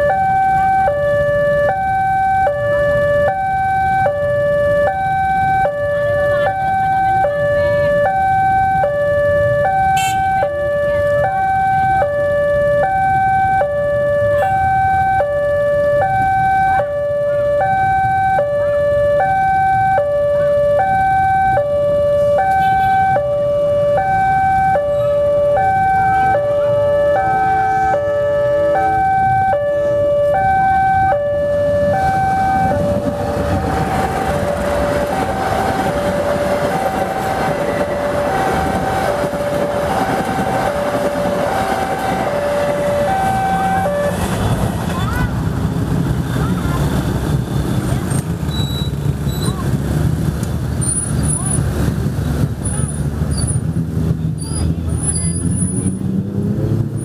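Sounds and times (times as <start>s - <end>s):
train rumble: 28.7s - 57.0s.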